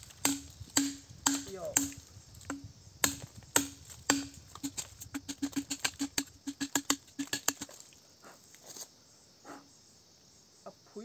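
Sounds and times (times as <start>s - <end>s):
bamboo tube being chopped: 0.2s - 7.8s.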